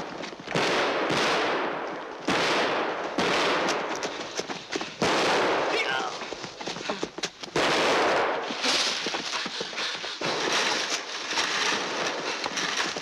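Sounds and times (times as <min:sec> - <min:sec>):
people running through undergrowth: 0:00.0 - 0:00.8, 0:01.8 - 0:13.0
gunfire cracks: 0:00.5 - 0:04.0, 0:05.0 - 0:06.1, 0:07.6 - 0:08.8.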